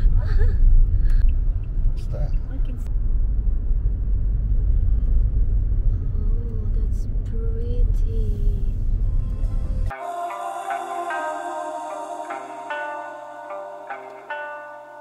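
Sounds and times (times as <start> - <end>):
car driving rumble inside cabin: 0.0 - 9.9.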